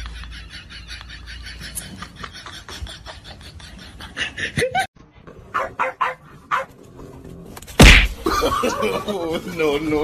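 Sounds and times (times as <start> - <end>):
dog barking: 5.5 - 6.7.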